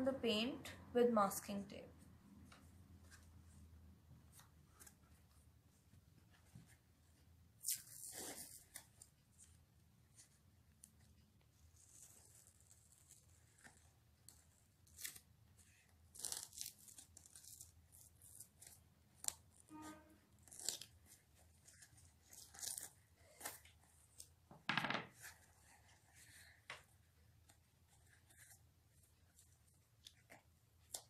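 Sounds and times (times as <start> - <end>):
masking tape ripping off roll: 7.6 - 9.1, 11.8 - 19.6, 20.4 - 24.2.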